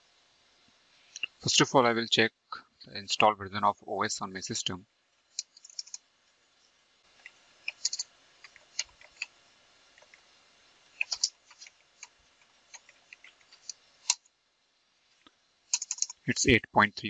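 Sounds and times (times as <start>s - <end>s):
keyboard key clicks: 11.0s - 11.6s.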